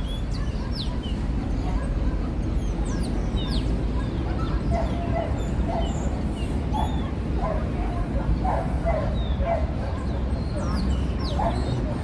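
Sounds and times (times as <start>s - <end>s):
small birds chirping: 0.0s - 7.2s, 8.4s - 12.0s
dog yipping: 4.3s - 12.0s.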